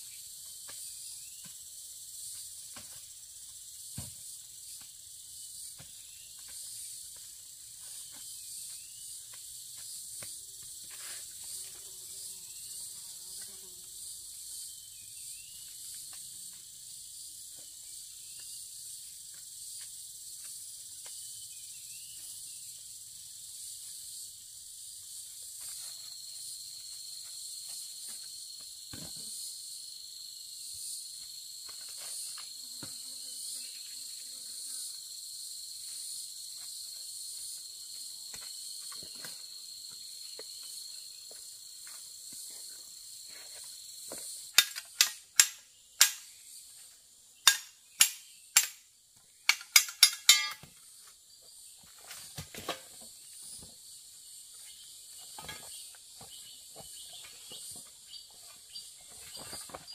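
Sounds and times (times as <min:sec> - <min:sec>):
insects buzzing: 0:00.0 - 0:59.9
machete chopping wood: 0:47.5 - 0:48.8.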